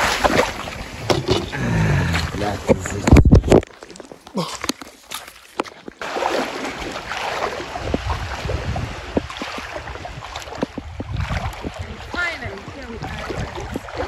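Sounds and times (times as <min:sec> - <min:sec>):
wind buffeting microphone: 0:07.4 - 0:14.0.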